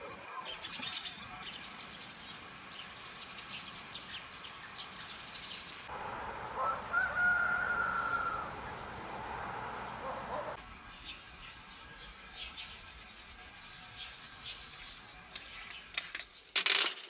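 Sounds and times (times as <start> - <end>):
small birds chirping faintly: 0.0 - 16.1
rooster crowing: 5.9 - 10.6.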